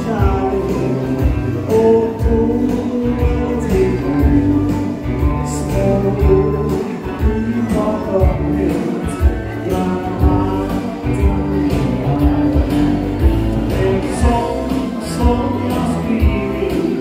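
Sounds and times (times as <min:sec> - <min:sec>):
bass line: 0:00.0 - 0:17.0
electric guitar: 0:00.0 - 0:17.0
keyboards: 0:00.0 - 0:17.0.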